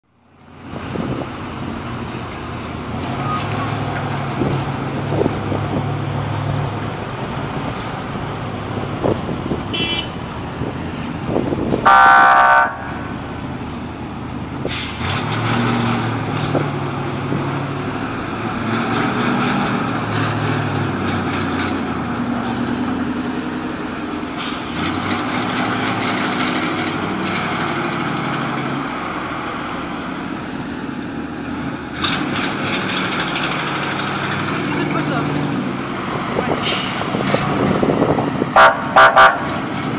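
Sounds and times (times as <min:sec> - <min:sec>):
fire truck engines running: 0:00.0 - 0:39.9
horn blast: 0:09.7 - 0:10.2, 0:11.8 - 0:13.1, 0:38.6 - 0:39.5.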